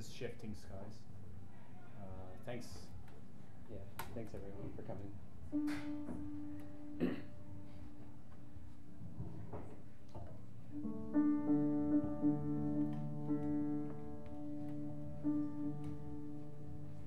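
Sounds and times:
piano notes: 4.9 - 17.0.

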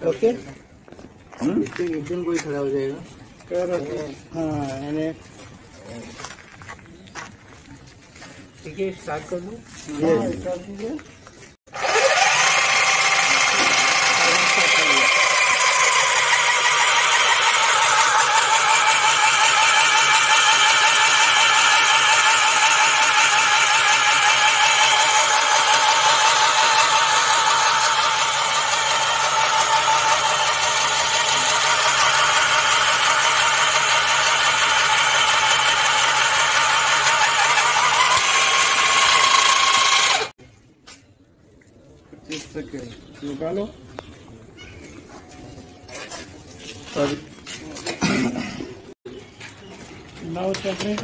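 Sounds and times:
rail drill whining and grinding: 11.7 - 40.4.

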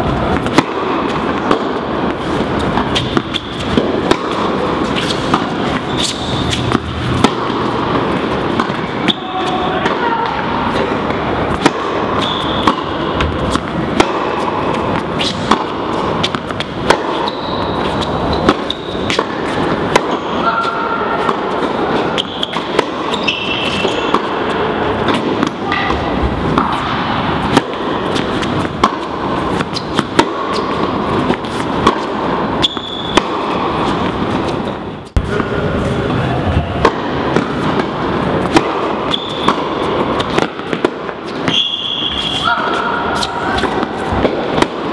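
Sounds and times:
balls bouncing on hard court: 0.0 - 44.9
tennis balls cracking off rackets: 0.2 - 20.5, 21.1 - 35.5, 36.8 - 41.6, 42.7 - 44.9
high squeaks: 4.8 - 6.9, 12.1 - 13.1, 17.1 - 19.6, 20.2 - 24.3, 29.5 - 30.8, 32.6 - 33.2, 39.0 - 39.6, 41.4 - 44.1.

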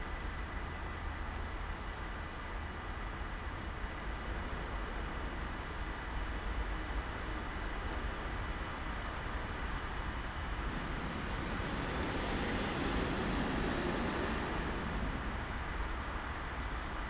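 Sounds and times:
road traffic noise: 0.0 - 17.0
truck driving past: 8.8 - 17.0.

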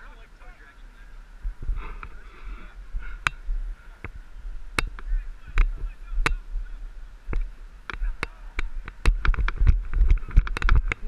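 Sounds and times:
wind rumble on microphone: 0.0 - 11.0
lacrosse sticks and ball clacking: 4.0 - 6.4, 7.3 - 11.0.

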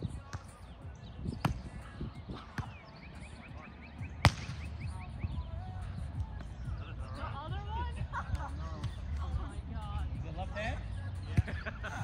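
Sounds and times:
volleyball hit slaps: 4.2 - 4.7.

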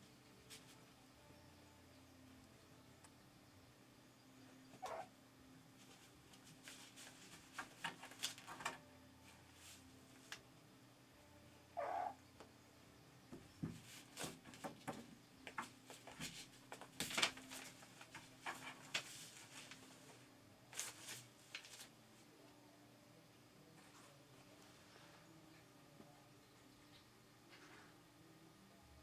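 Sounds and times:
kitten mewing: 4.8 - 5.1, 11.8 - 12.2
kittens scratching paper: 5.8 - 8.8, 15.6 - 19.9.

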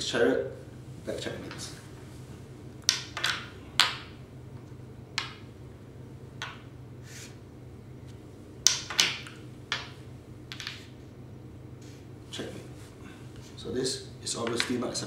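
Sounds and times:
game pieces clacking on board: 2.8 - 4.1, 5.2 - 5.5, 8.7 - 10.9.

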